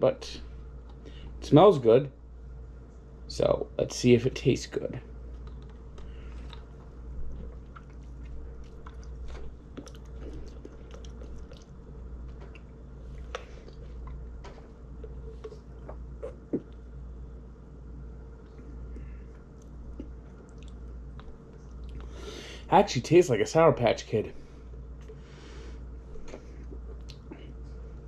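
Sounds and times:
steady low hum: 0.0 - 28.0
wet mouth clicks: 5.4 - 6.7, 7.6 - 11.8, 26.3 - 27.3
swallowing: 5.4 - 14.3, 15.0 - 16.9, 18.5 - 22.3.

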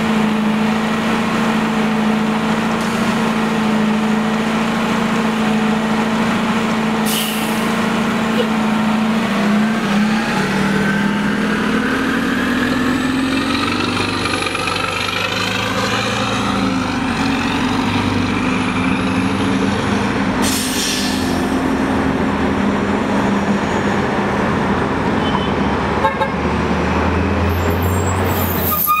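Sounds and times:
bus engine accelerating: 0.0 - 29.0
air brake hiss: 7.1 - 7.7, 20.4 - 21.4.

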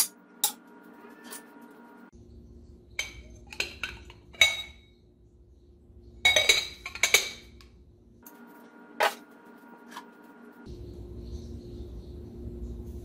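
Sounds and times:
glass clinking against glass: 3.0 - 4.9, 6.2 - 7.5.

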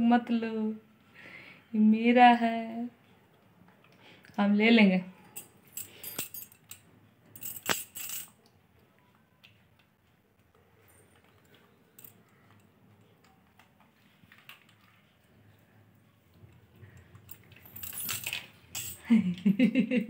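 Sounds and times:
metal chain clinking: 5.2 - 8.4, 10.9 - 12.6, 17.0 - 19.1.

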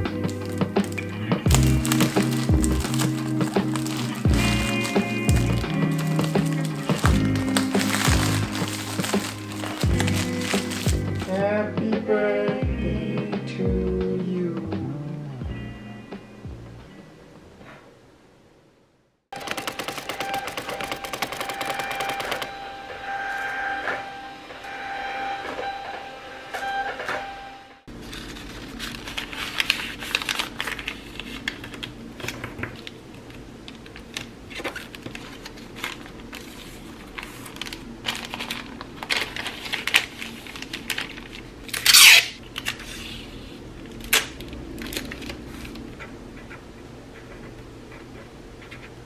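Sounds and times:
paper and plastic rustling: 0.0 - 11.3, 27.9 - 46.6
loud ripping: 0.3 - 11.3, 41.7 - 42.4
label printer clicking: 19.4 - 22.6
printer motor whine: 19.4 - 27.8.

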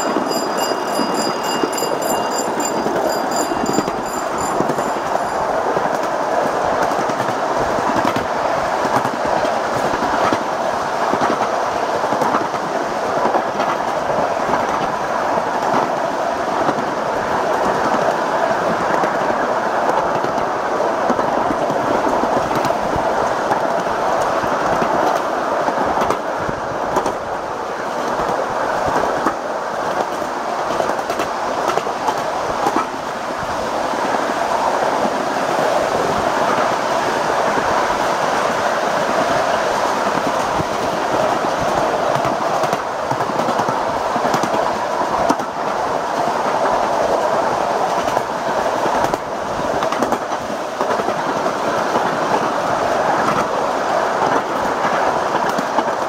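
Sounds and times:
clicks and clatter of track: 0.0 - 6.1, 28.1 - 33.0, 49.8 - 52.4
small steel wheels rumbling on rails: 0.0 - 11.4.

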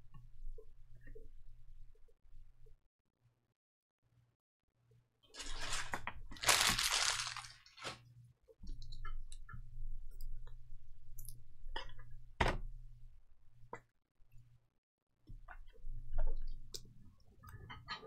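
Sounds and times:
cards rustling: 5.4 - 8.0.

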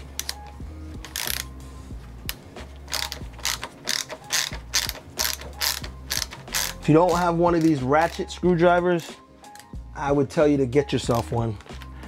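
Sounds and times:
ratchet screwdriver clicking: 0.2 - 1.6, 2.3 - 8.3.

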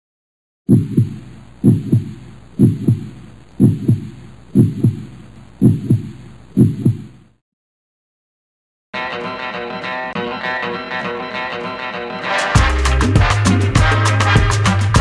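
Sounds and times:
heartbeat thumps: 0.7 - 7.3.

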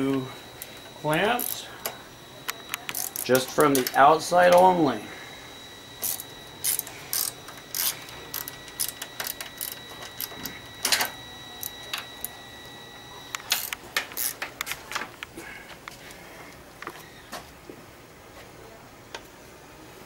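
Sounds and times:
hand ratchet clicking: 1.4 - 4.7, 6.0 - 12.3, 13.4 - 14.7.

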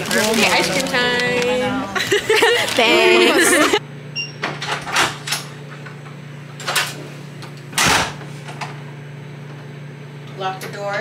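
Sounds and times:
low room hum: 0.0 - 11.0
door closing with a thud: 7.8 - 8.2.

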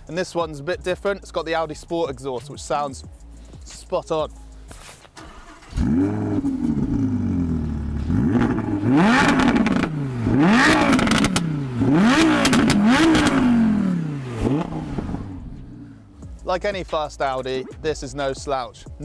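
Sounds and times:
sports car engine revving: 5.2 - 16.2.

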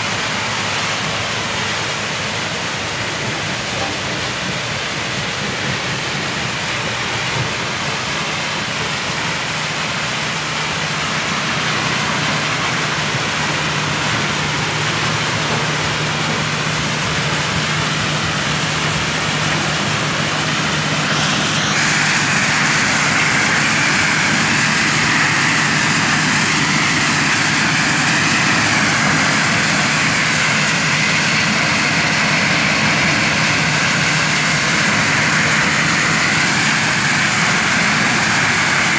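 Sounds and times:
stone crusher running: 10.4 - 38.9.

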